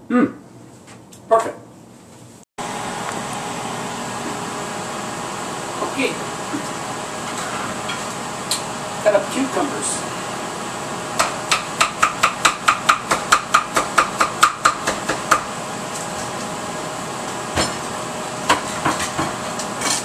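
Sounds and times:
knife chopping on wooden board: 11.2 - 15.5.

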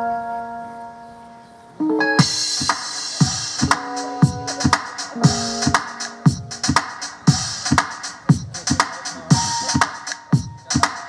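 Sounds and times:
held synthesizer chords: 0.0 - 7.8
electronic dance beat: 2.2 - 11.0
hi-hats: 2.2 - 11.0
deep kick drum: 4.2 - 7.6.

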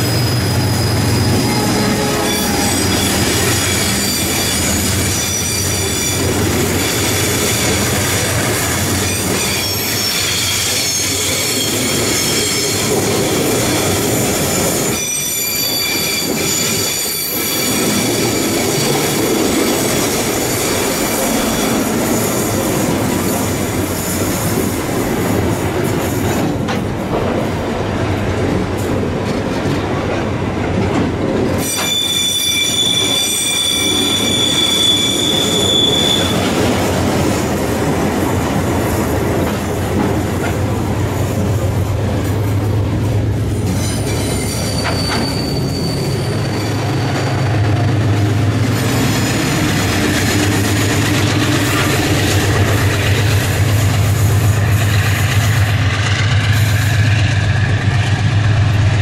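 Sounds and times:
ringing wheel squeal: 0.0 - 22.4, 31.6 - 36.6, 43.5 - 47.6
train wheels rolling on rail: 0.0 - 59.0.

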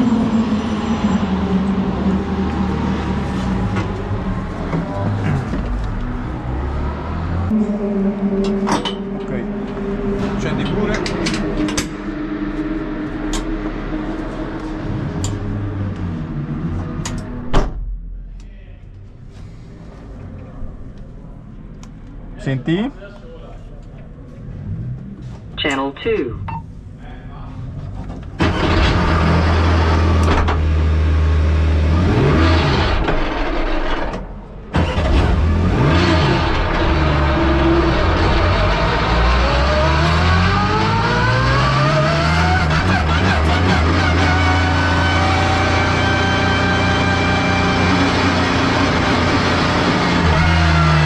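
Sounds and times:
engine throttle blips: 7.0 - 17.4.

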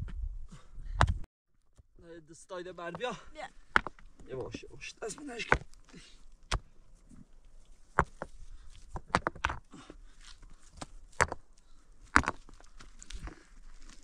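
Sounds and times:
sharp knocks of hard objects: 3.7 - 4.0.

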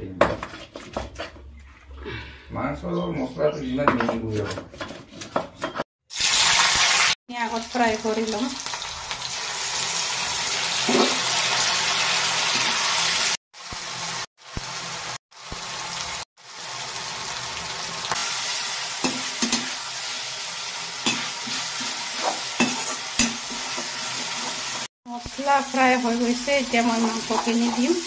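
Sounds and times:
hot oil sizzling: 6.1 - 28.0
metal spatula scraping pan: 21.0 - 24.9, 26.5 - 28.0.

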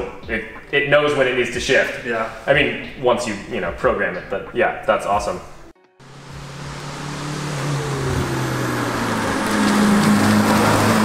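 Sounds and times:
diesel race car engine passing: 6.0 - 11.0.

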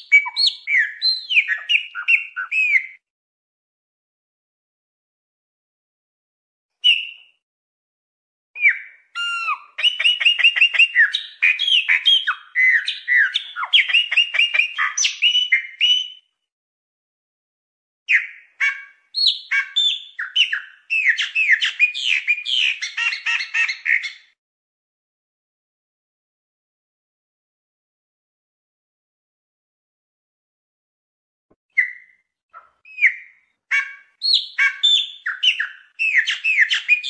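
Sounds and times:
blackbird singing: 0.0 - 3.0, 6.8 - 7.3, 8.6 - 16.3, 18.1 - 24.4, 31.7 - 37.0.

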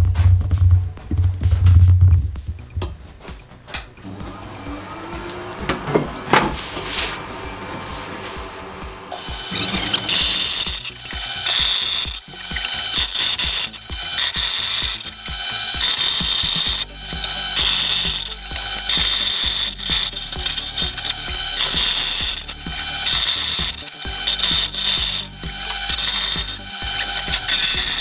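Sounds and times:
bandsaw cutting metal: 4.0 - 28.0
high blade screech: 6.7 - 28.0.

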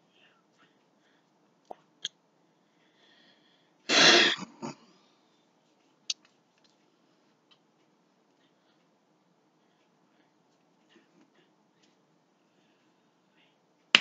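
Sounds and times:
person coughing: 3.9 - 4.9.

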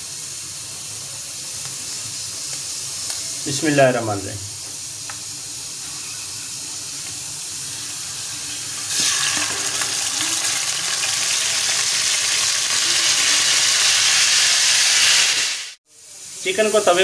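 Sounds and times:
oil sizzling: 0.0 - 17.0.

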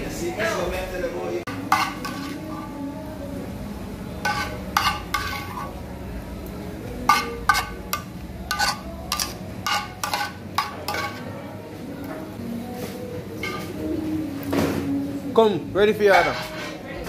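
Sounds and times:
low kitchen hum: 0.0 - 17.0
utensil clinking on metal bowl: 1.5 - 2.4, 4.2 - 5.7, 7.0 - 11.3, 16.1 - 16.8.

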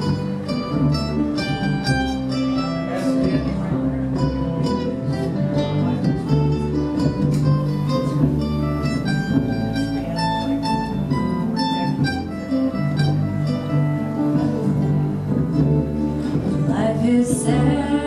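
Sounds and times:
acoustic guitar: 0.0 - 18.0
mandolin picking: 0.0 - 18.0
upright bass: 0.0 - 18.0.

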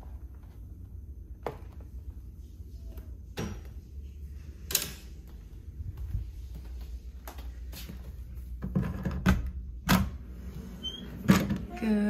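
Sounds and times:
footsteps: 1.6 - 8.6.

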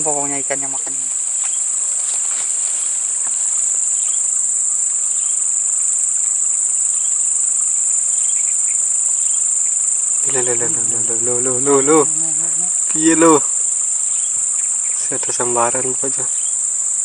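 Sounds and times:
insect chorus shrilling: 10.2 - 16.6.

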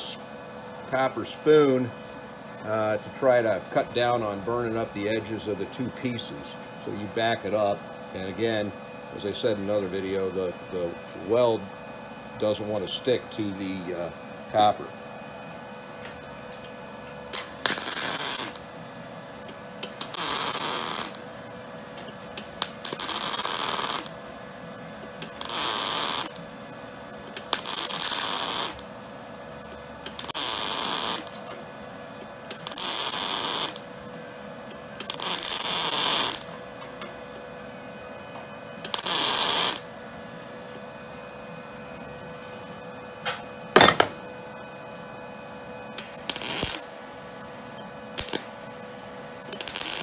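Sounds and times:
steady hum: 0.0 - 50.0
welder arc crackling: 17.3 - 21.7, 22.3 - 24.2, 25.2 - 26.5, 27.3 - 29.2, 30.0 - 33.9, 34.5 - 37.4, 38.8 - 40.0, 45.9 - 50.0.

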